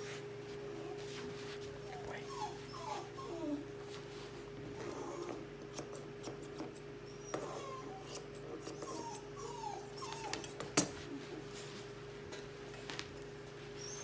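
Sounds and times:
puppy whimpering: 1.8s - 3.9s, 4.7s - 5.5s, 7.0s - 11.6s, 13.8s - 14.0s.

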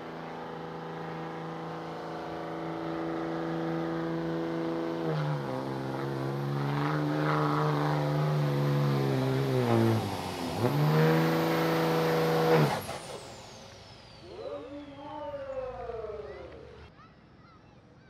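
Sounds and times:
truck engine revving hard: 0.0s - 13.6s.

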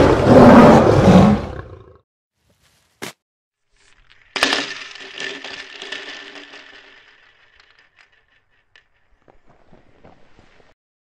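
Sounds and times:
roar: 0.0s - 2.0s
faint clicks and crackles: 3.8s - 10.7s.

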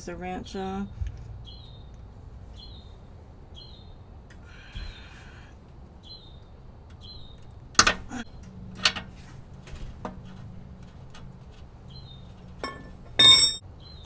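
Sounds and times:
small bird chirping: 0.8s - 4.1s
wrench clanking on metal: 12.6s - 13.6s.

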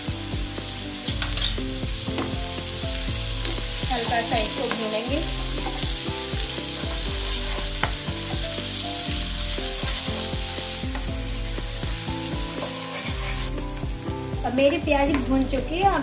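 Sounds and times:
vegetables sizzling in a pan: 0.0s - 16.0s
wooden spatula scraping pan: 6.8s - 8.5s, 12.4s - 13.8s.

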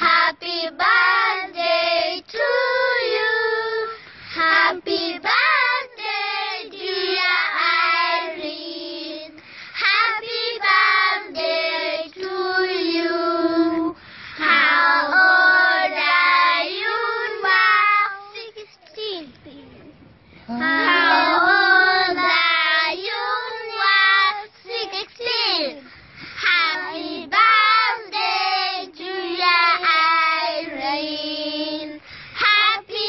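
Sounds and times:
children singing together: 0.0s - 18.4s, 20.5s - 25.4s, 26.4s - 33.0s.

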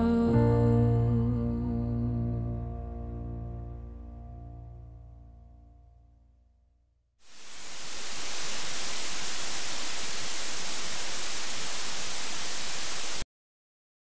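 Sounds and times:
television static hiss: 7.2s - 13.2s.

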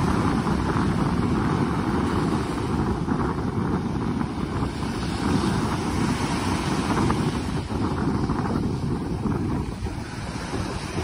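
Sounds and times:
small waves breaking on beach: 0.0s - 11.0s
wind buffeting microphone: 0.0s - 11.0s.

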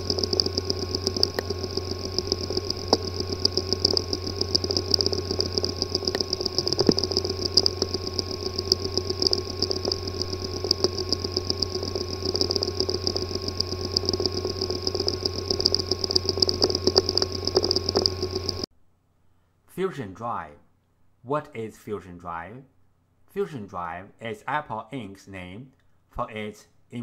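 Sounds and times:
damaged drive clicking: 0.0s - 18.7s
hard disk drive whirring: 0.0s - 18.7s.

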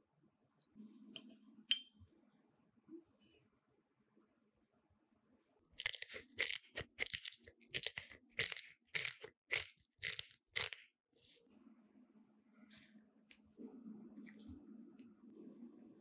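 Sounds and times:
pepper mill grinding: 5.8s - 10.9s.

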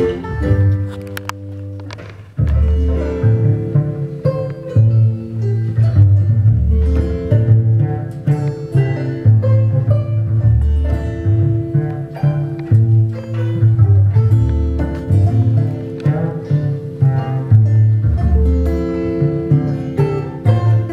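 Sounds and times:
acoustic guitar: 0.0s - 20.9s
banjo picking: 0.0s - 20.9s
double bass: 0.0s - 20.9s.

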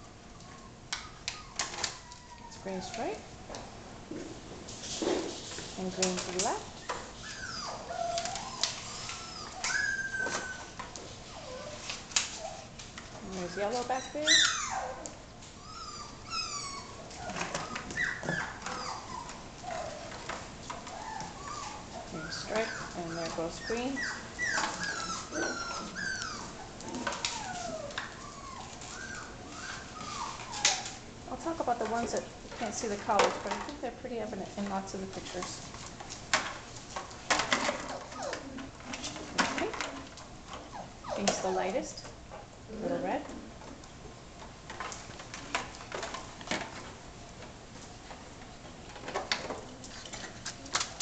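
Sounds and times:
puppies whining and yipping: 0.3s - 3.0s, 6.7s - 31.1s, 37.6s - 38.8s, 39.6s - 41.6s.

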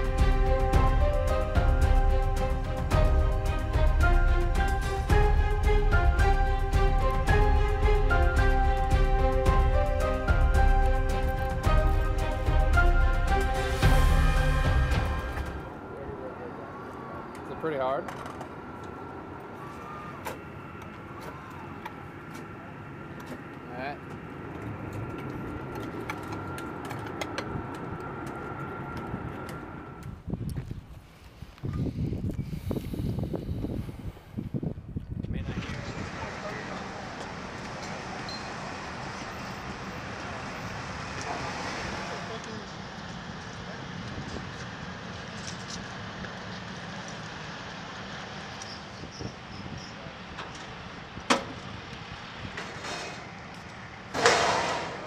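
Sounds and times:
machinery hum: 0.0s - 34.7s
sharp metallic clank: 54.1s - 55.0s.

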